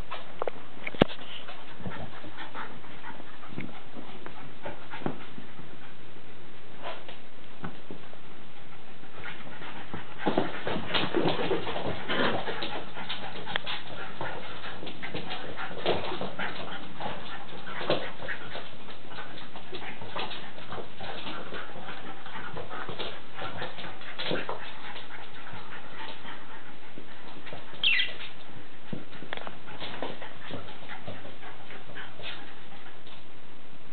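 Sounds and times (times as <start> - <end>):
dogs scuffling: 0.0 - 5.6, 9.0 - 33.4
dog whimpering: 27.8 - 28.2
dog yelp: 27.8 - 28.2.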